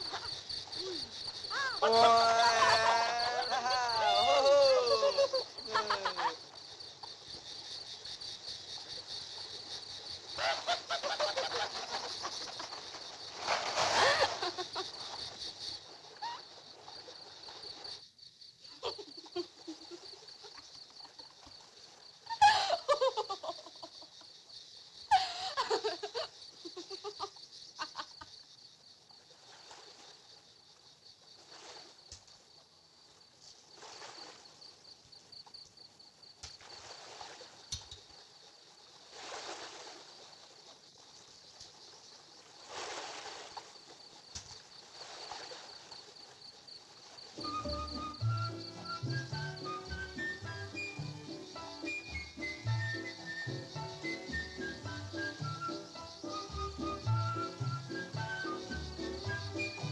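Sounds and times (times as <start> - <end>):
insect chirring: 0.0 - 59.9
young woman laughing and giggling: 1.6 - 6.4, 18.7 - 20.6, 22.3 - 24.3, 25.1 - 28.4.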